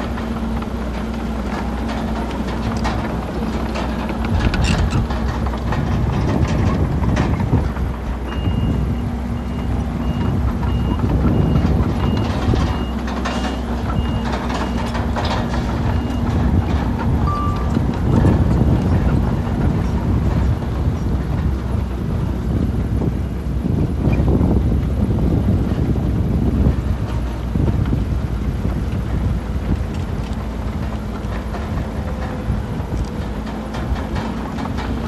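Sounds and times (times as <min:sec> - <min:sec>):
clanks and rattles: 0:00.0 - 0:35.0
diesel engines running: 0:00.0 - 0:35.0
reversing alarm beeping: 0:08.3 - 0:15.0, 0:17.2 - 0:18.3.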